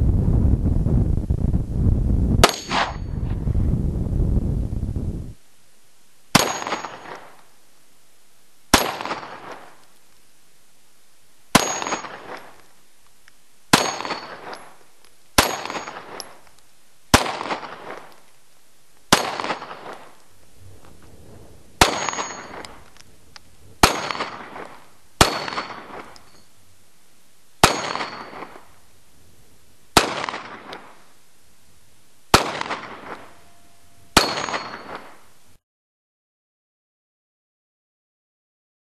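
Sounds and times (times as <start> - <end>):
metallic ring of steel plate: 2.5 - 3.2, 11.6 - 12.3, 21.9 - 22.7, 25.2 - 26.6, 33.0 - 35.3
handgun shots: 23.8 - 26.2.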